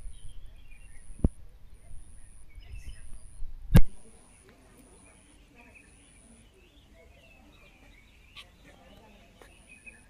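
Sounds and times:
wind rumbling on microphone: 0.0 - 4.2
faint bird chirps: 0.0 - 10.0.

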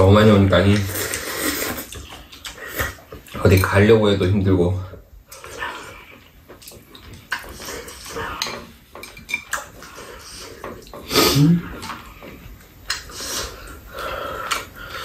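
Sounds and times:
chopsticks and spoons clicking on bowls: 5.3 - 13.6.

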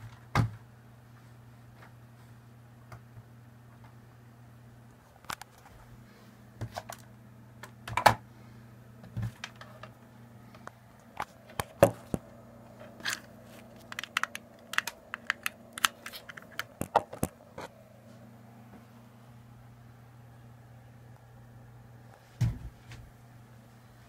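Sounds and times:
steady low hum: 0.0 - 24.0
cables and connectors clicking: 5.2 - 5.7, 6.6 - 8.2, 9.0 - 17.7.

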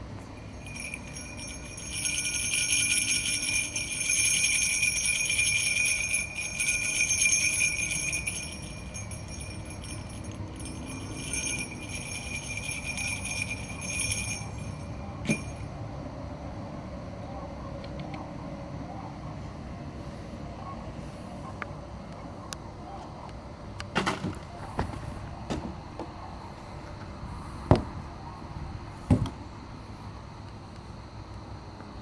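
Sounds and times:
jingle bells shaken: 0.4 - 15.7.

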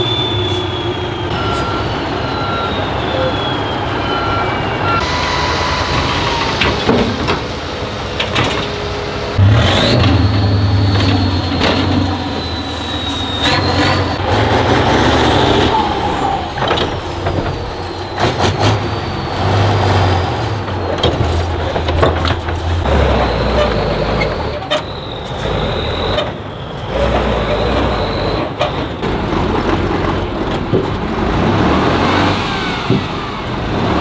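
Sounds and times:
diesel truck engine under load: 0.0 - 34.0
truck knocks and bangs: 6.5 - 8.8, 16.4 - 25.0, 27.0 - 34.0.

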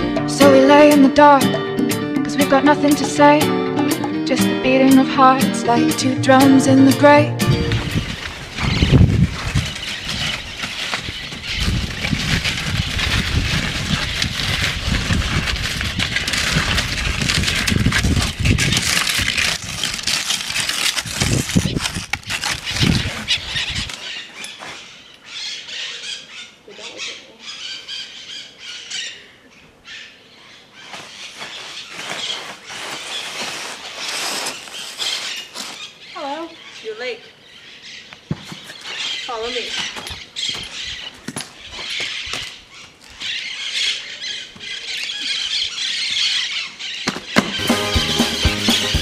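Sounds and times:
wind buffeting microphone: 7.4 - 20.0, 21.0 - 24.0
high-pitched bird calls: 7.5 - 12.1, 22.4 - 47.8.

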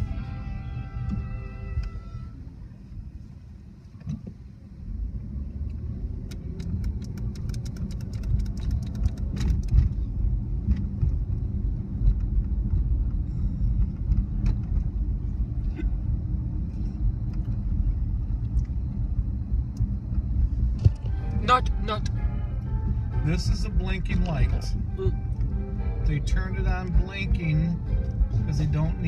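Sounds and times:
car engine and road noise: 0.0 - 29.0
scattered clicks: 5.7 - 10.0
fast sharp ticks: 6.2 - 10.0.

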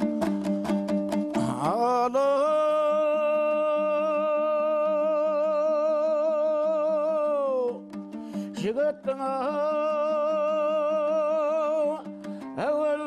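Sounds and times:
plucked lute strings ringing: 0.0 - 2.8.

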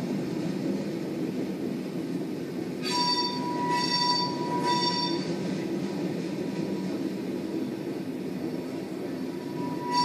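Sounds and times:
train cars rumbling past: 0.0 - 10.0
train wheels squealing: 2.8 - 5.5, 9.2 - 10.0.

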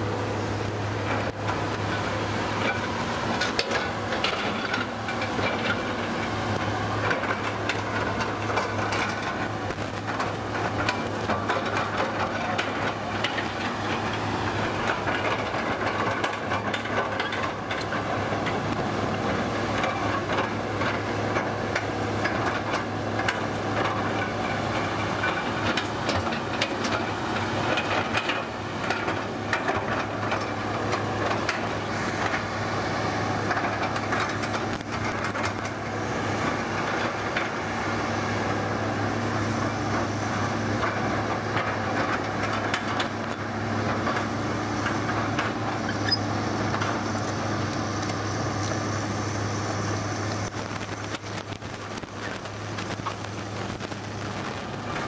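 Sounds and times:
excavator diesel engine running: 0.0 - 55.0
metallic clanks and knocks: 1.0 - 18.7.

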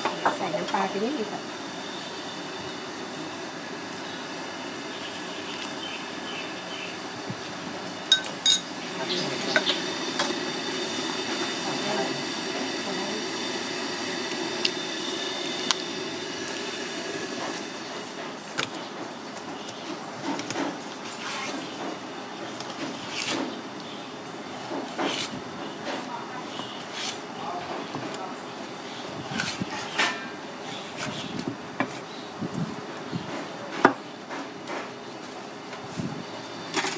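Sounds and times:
broth boiling and bubbling: 0.0 - 30.7
kitchen utensils clinking: 8.1 - 10.4, 29.8 - 30.4.

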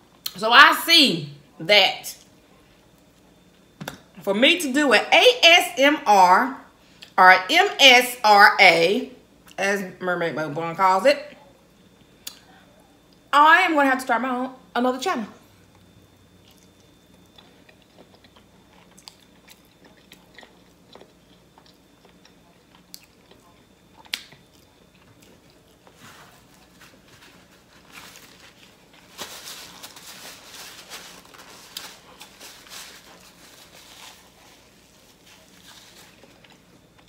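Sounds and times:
chewing and mouth sounds: 15.7 - 27.9
wet clicks and smacks: 24.1 - 24.4.

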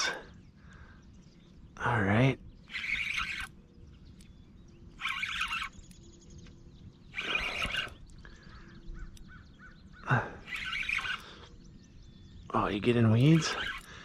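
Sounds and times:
faint birdsong: 0.0 - 14.0
fishing reel cranking: 2.6 - 3.6, 5.0 - 6.0, 7.1 - 8.2, 10.1 - 11.5, 13.1 - 14.0.

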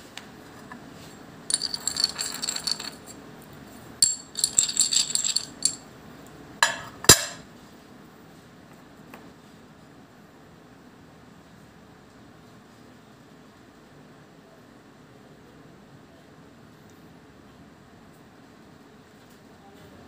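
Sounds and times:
coin knocking down: 1.5 - 3.2, 4.0 - 5.8.

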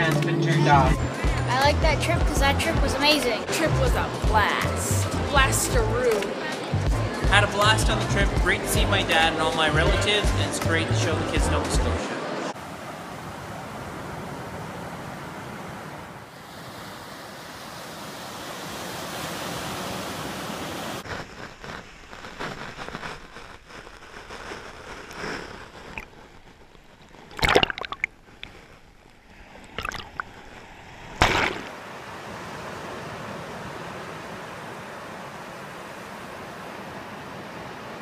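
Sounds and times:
waves breaking on a beach: 12.2 - 26.0, 30.4 - 38.0
noise blasts on microphone: 21.0 - 31.7.

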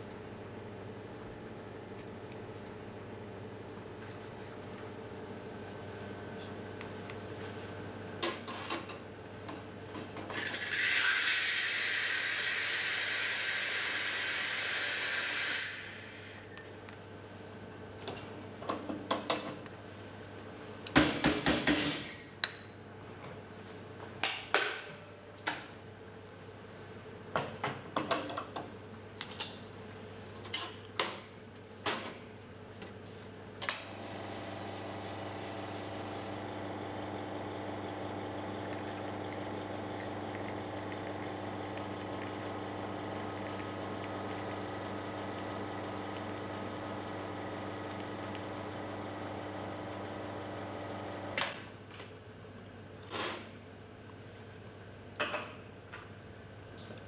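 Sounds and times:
espresso machine pump humming: 10.8 - 16.3, 33.9 - 51.4.

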